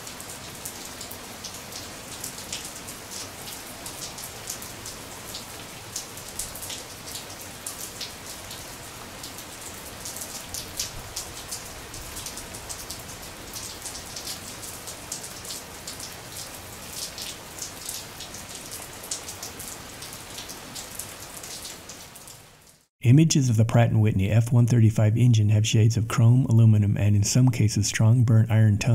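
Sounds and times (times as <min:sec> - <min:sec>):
steady rain falling: 0:00.0 - 0:22.9.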